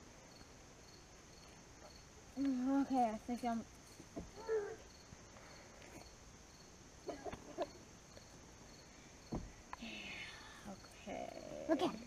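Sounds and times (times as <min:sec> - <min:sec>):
insects chirring: 0:00.0 - 0:12.0
low thump: 0:09.3 - 0:09.6.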